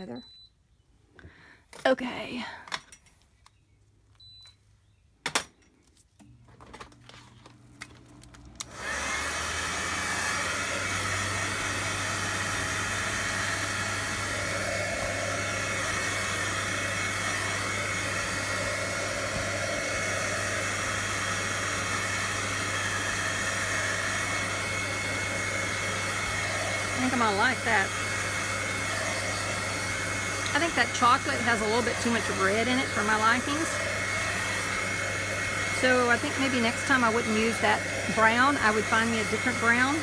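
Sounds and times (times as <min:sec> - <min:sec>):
blow dryer running: 0:08.2 - 0:40.0.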